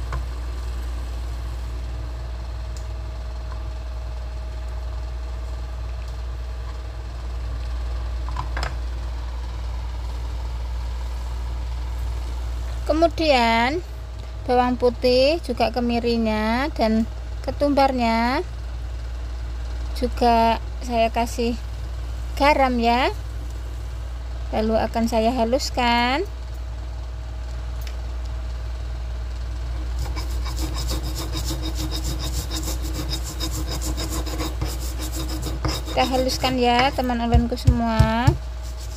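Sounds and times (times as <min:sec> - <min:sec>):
steady low hum: 0:00.0 - 0:38.9
stone pestle grinding in mortar: 0:29.8 - 0:38.9
knife tapping on cutting board: 0:36.8 - 0:38.4.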